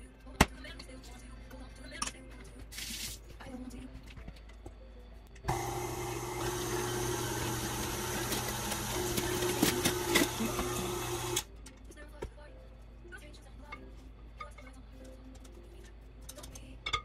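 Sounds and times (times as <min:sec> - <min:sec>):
stand mixer motor running: 0:05.5 - 0:11.4
whisk beating batter: 0:06.2 - 0:11.4.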